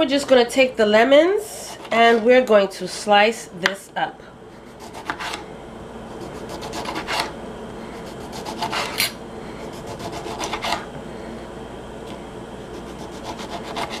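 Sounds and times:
knife sawing through lemon: 4.7s - 5.4s, 6.1s - 7.3s, 8.0s - 10.9s, 12.7s - 14.0s.

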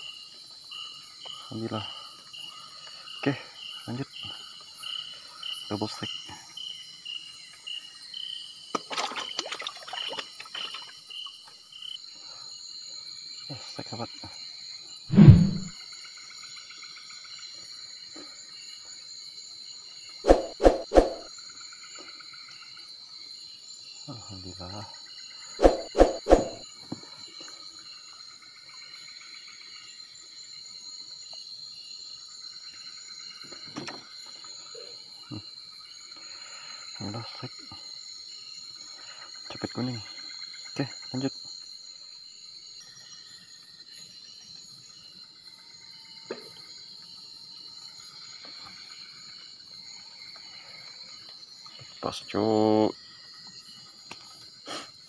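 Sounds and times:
cricket chirping: 0.0s - 55.0s
steady high insect buzz: 10.8s - 55.0s.

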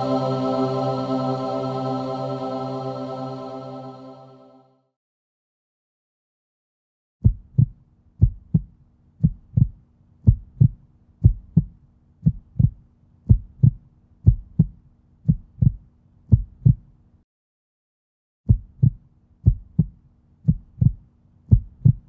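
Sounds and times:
heartbeat thumps: 7.2s - 16.9s, 18.5s - 22.0s.

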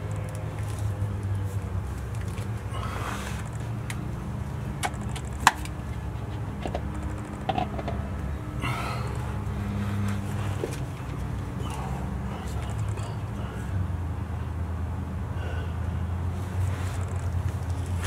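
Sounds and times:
steady low hum: 0.0s - 18.0s
metallic clicks and knocks: 6.6s - 8.3s.

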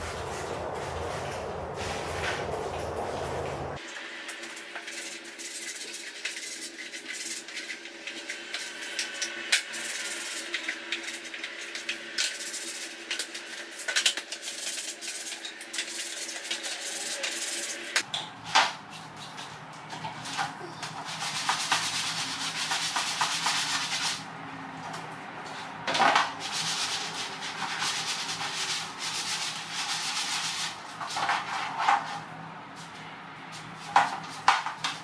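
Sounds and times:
sponge scrubbing plastic: 4.4s - 8.9s, 9.7s - 18.0s, 20.2s - 24.2s, 26.1s - 32.2s.

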